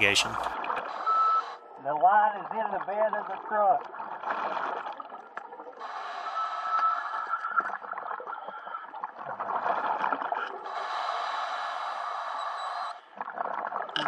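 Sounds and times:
underwater bubble gurgling: 2.4s - 5.8s, 7.2s - 10.7s, 13.0s - 14.0s.

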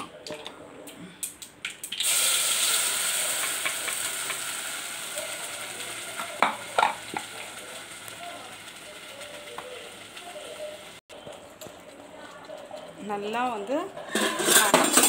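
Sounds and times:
paste sizzling in hot oil: 1.9s - 11.0s.

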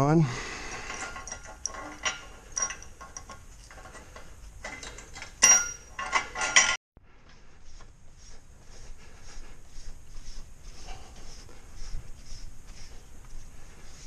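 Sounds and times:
steel bars clanking and rattling: 0.6s - 6.8s
ringing metal clanks: 0.9s - 4.0s, 4.6s - 6.8s.

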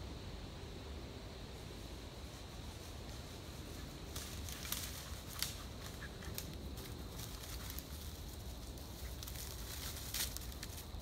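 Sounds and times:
dry leaves crunching underfoot: 4.1s - 11.0s.

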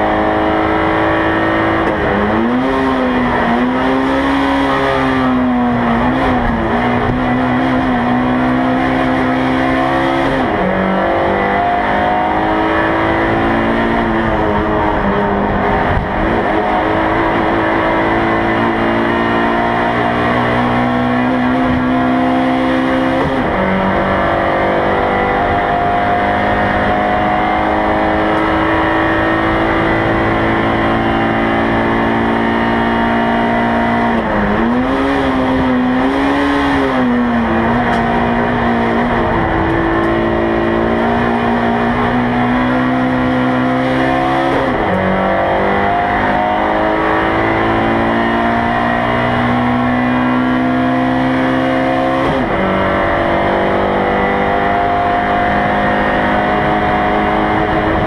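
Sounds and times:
race car engine at high revs: 0.0s - 58.0s.

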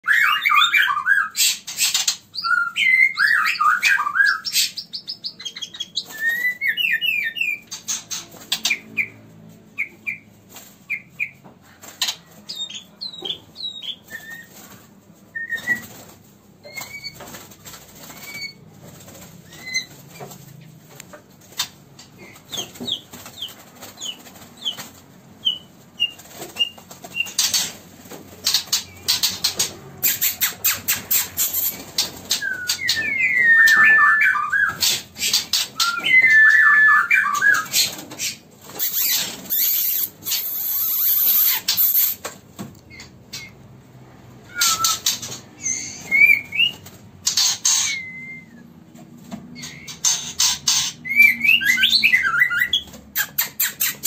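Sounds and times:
bird whistled song: 0.0s - 8.0s, 12.5s - 14.6s, 15.3s - 16.0s, 30.0s - 42.2s, 44.4s - 46.8s, 47.4s - 48.7s, 50.7s - 54.0s
wing flutters: 37.4s - 42.4s.

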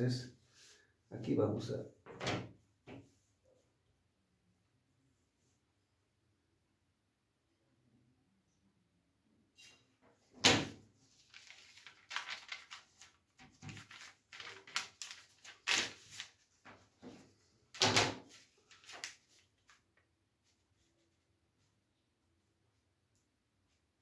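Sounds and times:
paper rustling on table: 10.5s - 21.2s.

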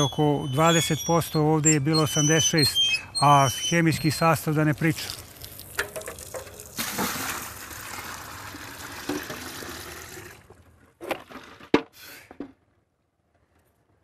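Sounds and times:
water pouring into bucket: 4.9s - 10.6s
buckets knocking: 5.7s - 7.4s.

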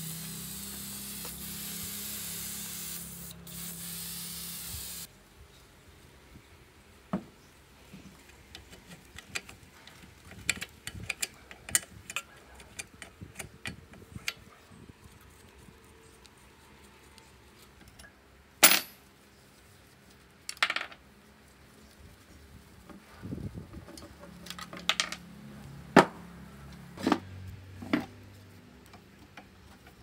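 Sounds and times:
metal parts and tools clinking: 17.8s - 19.0s.

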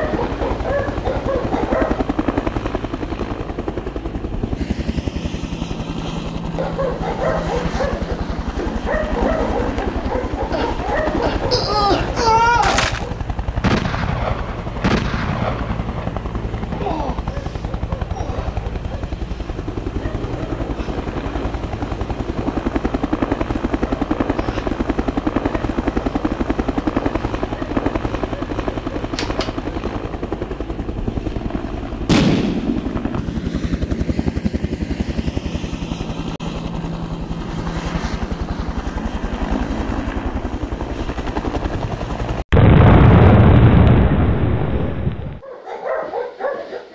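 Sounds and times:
helicopter rotor chop: 0.0s - 46.6s
sharp bangs: 32.1s - 33.0s.

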